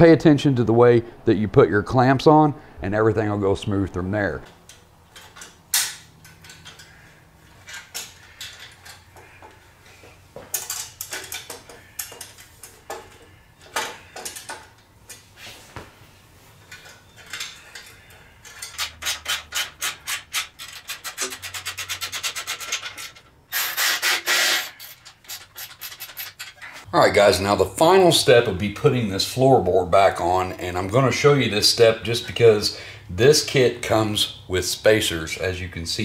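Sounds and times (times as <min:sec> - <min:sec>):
metal scraping and rubbing: 0:16.7 - 0:26.9
loud rasping scrape: 0:18.8 - 0:26.8.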